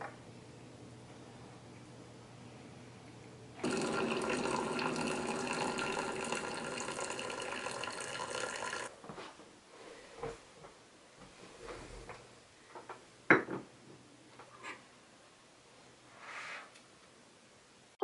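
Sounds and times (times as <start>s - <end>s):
coffee maker pouring water: 3.6s - 8.9s.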